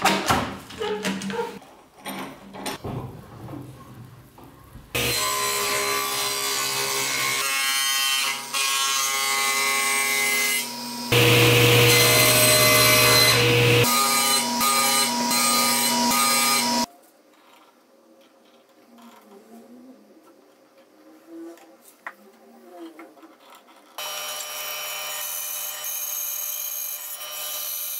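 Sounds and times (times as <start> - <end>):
table saw cutting wood: 5.0 - 16.9, 24.0 - 27.9.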